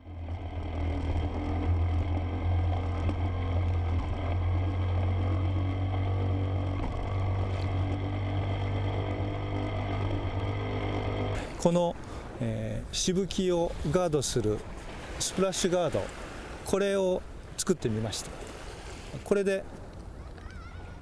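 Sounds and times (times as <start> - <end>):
outboard motor running: 0.0 - 20.8
water splashing against hull: 0.0 - 21.0.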